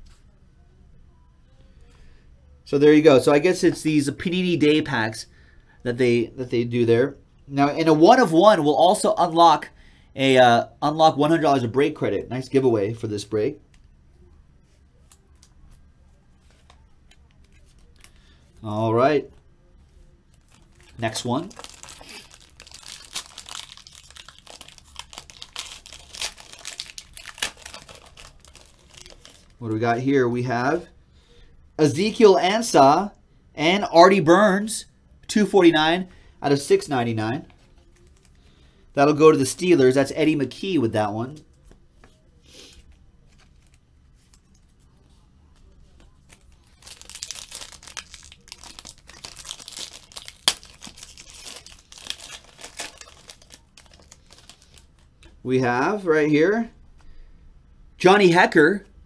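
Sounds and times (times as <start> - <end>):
foil wrapper tearing and crinkling: 20.3 - 29.6, 46.2 - 55.1.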